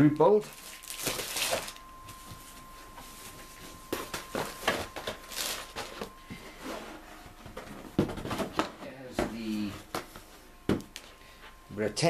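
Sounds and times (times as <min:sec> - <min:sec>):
faint steady high tone: 0:00.0 - 0:07.9, 0:08.8 - 0:09.9, 0:11.0 - 0:12.0
plastic kit rustling and knocking: 0:07.4 - 0:10.1.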